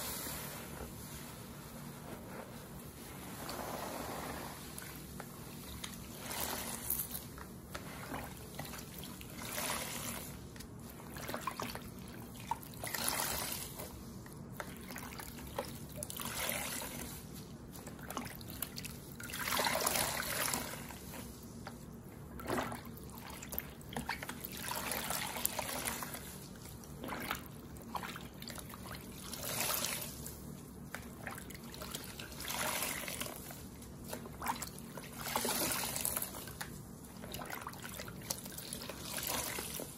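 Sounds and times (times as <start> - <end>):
sponges squeezed in water: 3.4 - 21.6, 22.3 - 39.9.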